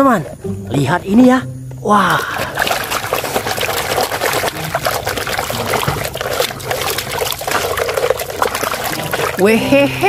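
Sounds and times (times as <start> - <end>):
water sloshing in plastic basin: 2.1 - 10.0
brush scrubbing toy car: 2.5 - 9.4.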